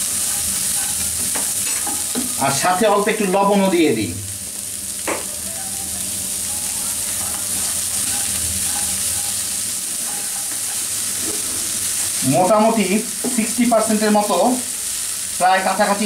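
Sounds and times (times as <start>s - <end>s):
spatula scraping pan: 0.0s - 2.2s, 6.6s - 12.3s
vegetables sizzling in hot oil: 0.0s - 16.0s.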